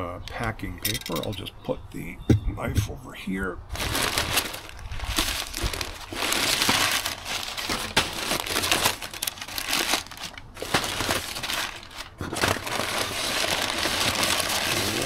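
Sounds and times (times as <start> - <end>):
packing paper rustling and crinkling: 3.7 - 15.0.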